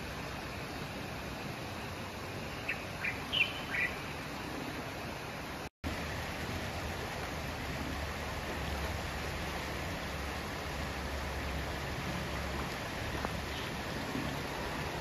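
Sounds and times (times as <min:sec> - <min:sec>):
bird chirps: 0:02.7 - 0:04.0
fast-flowing river rushing: 0:03.0 - 0:15.0.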